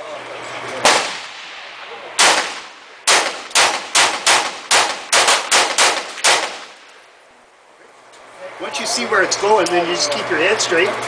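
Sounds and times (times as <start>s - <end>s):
rifle gunshots: 0.8s - 7.0s.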